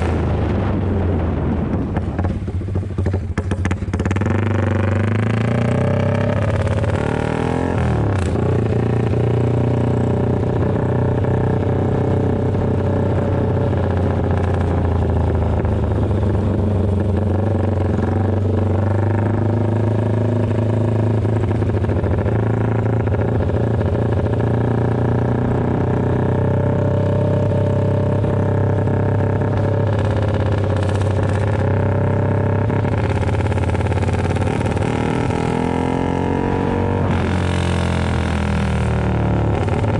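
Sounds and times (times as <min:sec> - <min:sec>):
motorcycle engine with loud exhaust: 0:00.0 - 0:39.9.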